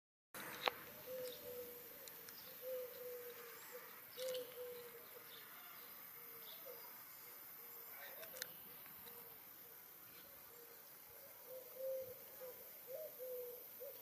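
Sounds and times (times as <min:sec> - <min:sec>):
bird low call: 0:00.4 - 0:14.0
insect chirring: 0:00.4 - 0:14.0.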